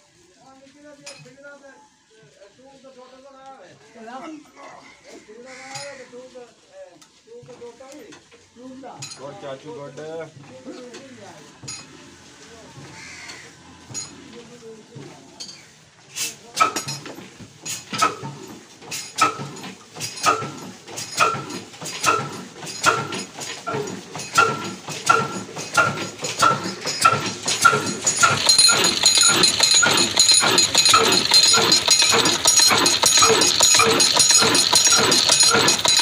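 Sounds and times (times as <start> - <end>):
diesel engine chugging: 17.8 - 36.0
steady higher engine hum: 23.7 - 36.0.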